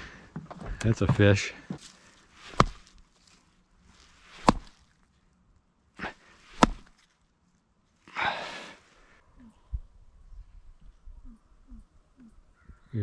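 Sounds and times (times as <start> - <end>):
rock striking fish head: 2.5 - 2.9, 4.3 - 4.8, 6.5 - 6.9.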